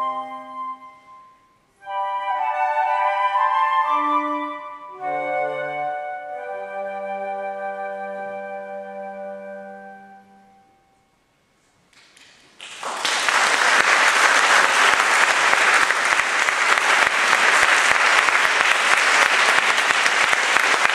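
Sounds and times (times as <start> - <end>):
audience applauding: 12.0 - 20.9.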